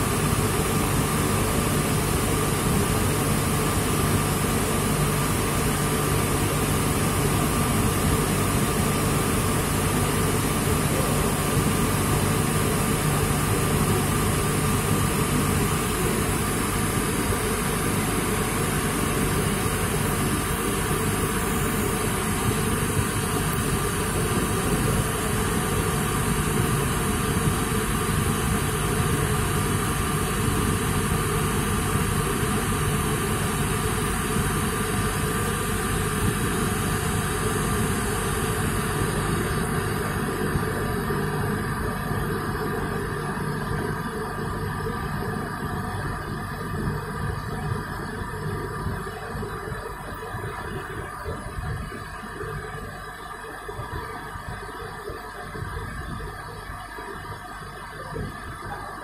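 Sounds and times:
cotton candy machine humming: 0:00.0 - 0:59.0.

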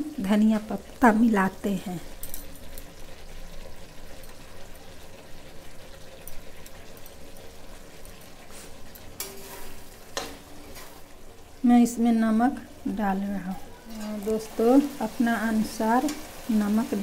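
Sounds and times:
gravy sizzling in pan: 0:00.0 - 0:17.0
metal spatula scraping pan: 0:08.5 - 0:11.0.

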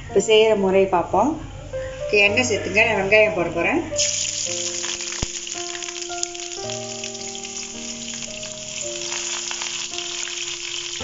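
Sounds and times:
background music with held notes: 0:00.0 - 0:11.0
onions sizzling in hot oil: 0:04.0 - 0:11.0.

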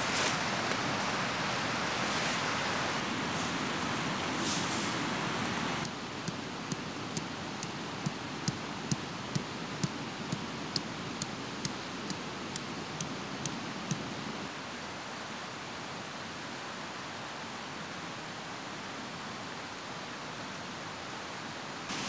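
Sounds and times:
light ticks: 0:05.4 - 0:14.1.

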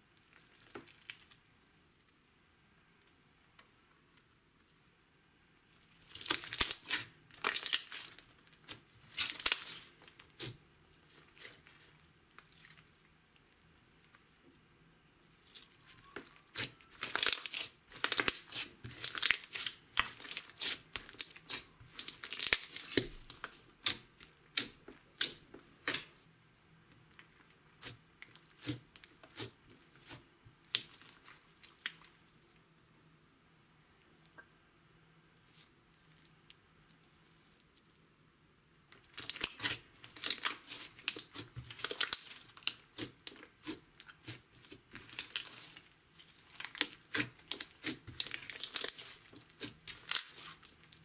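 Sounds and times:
slime crackling and popping: 0:05.8 - 0:13.7, 0:15.4 - 0:26.1, 0:27.1 - 0:32.1, 0:39.0 - 0:51.0.

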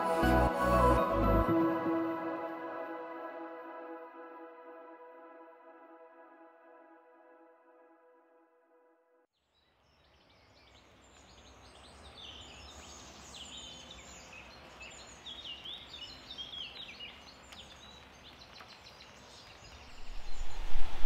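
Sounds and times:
ambient synth music: 0:00.0 - 0:08.8
small birds singing and chirping: 0:09.5 - 0:21.0.

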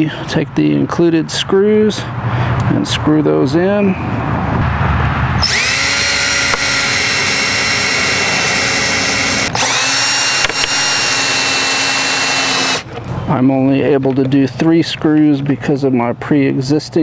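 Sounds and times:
cordless drill driving screws: 0:05.4 - 0:12.9.

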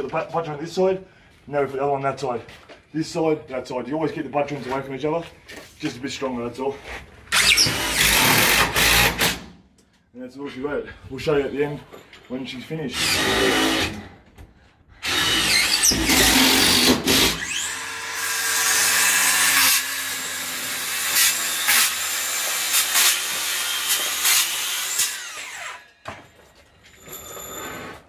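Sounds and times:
power saw cutting concrete panel: 0:07.3 - 0:09.4, 0:13.0 - 0:14.0, 0:15.0 - 0:25.9.

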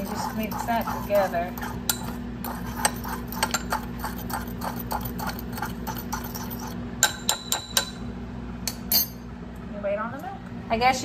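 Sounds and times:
spoon stirring in a ceramic mug: 0:00.0 - 0:08.0.

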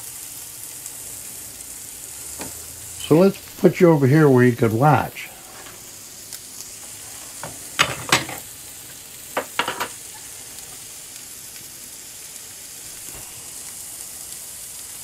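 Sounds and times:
sausage and onion sizzling in butter: 0:00.0 - 0:15.0.

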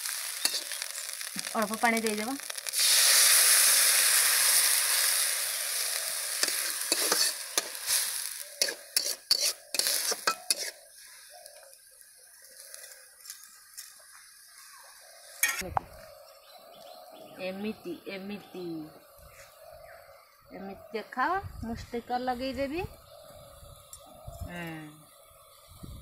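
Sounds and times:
water sizzling in hot oil: 0:00.0 - 0:15.6
spatula scraping a pan: 0:06.4 - 0:10.8.

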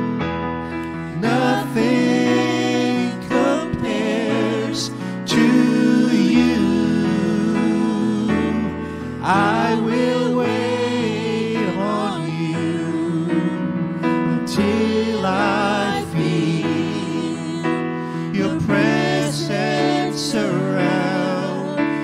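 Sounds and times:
electronic keyboard chords: 0:00.0 - 0:22.0
man singing into microphone: 0:01.1 - 0:22.0.

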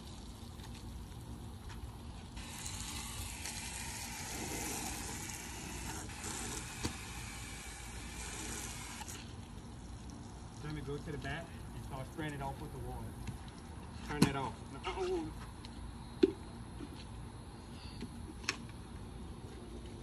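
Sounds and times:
hose spraying water on car: 0:02.2 - 0:12.8.

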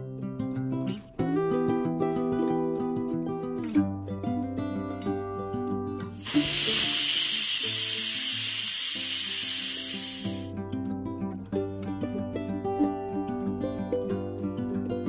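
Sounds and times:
plucked-string background music: 0:00.0 - 0:08.8, 0:10.2 - 0:15.0
pressure cooker steam hiss: 0:06.1 - 0:10.5.

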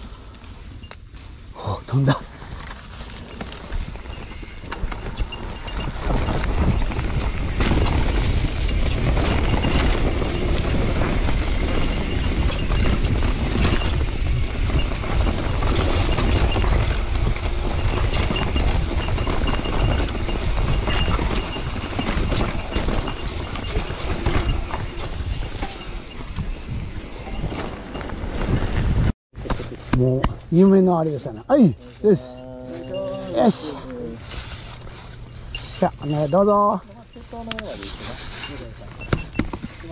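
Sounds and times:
bike rattling and clattering: 0:00.0 - 0:32.3, 0:33.4 - 0:39.9
wind rumbling on microphone: 0:02.2 - 0:30.5
tyre noise on dirt: 0:02.2 - 0:36.5.

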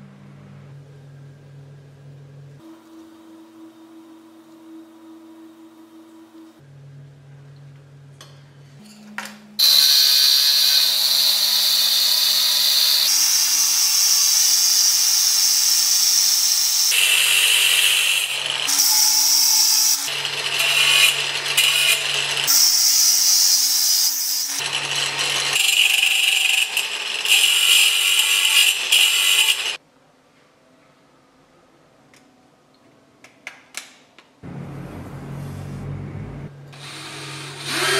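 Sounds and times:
angle grinder cutting steel: 0:09.6 - 0:29.8, 0:36.8 - 0:37.9.

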